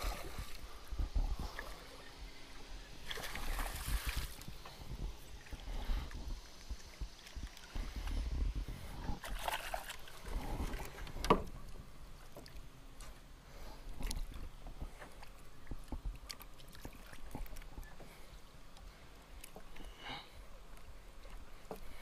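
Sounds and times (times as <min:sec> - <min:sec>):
fish splashing at the surface: 0:03.0 - 0:04.5.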